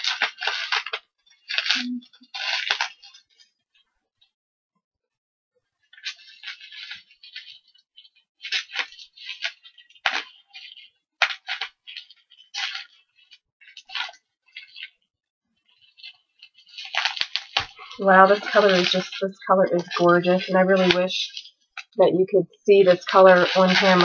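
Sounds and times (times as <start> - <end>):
scissors cutting plastic: 0.0 - 3.2
bubble wrap crinkling: 0.0 - 3.5, 5.8 - 15.0, 15.6 - 24.0.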